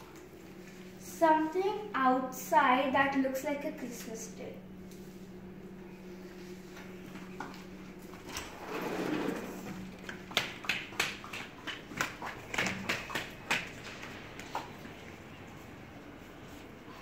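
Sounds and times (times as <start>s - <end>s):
sliding glass door rolling: 8.2s - 9.9s
child's footsteps on tiles: 9.9s - 17.0s.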